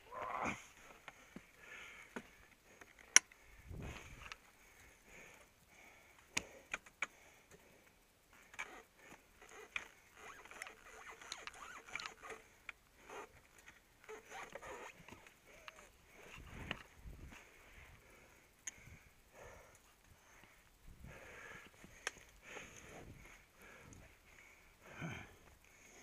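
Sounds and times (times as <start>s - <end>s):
gear clicks and taps: 2.1s - 3.4s, 6.2s - 7.6s, 8.4s - 17.5s, 21.6s - 22.8s.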